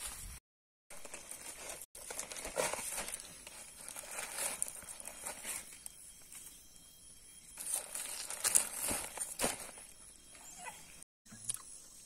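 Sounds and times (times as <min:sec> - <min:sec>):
leaf rustling: 0:00.9 - 0:05.9, 0:07.6 - 0:09.9.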